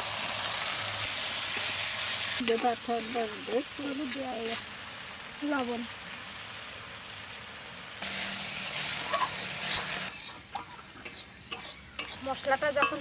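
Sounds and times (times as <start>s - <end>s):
spice paste sizzling in oil: 0.0s - 13.0s
spatula scraping and knocking: 10.1s - 13.0s.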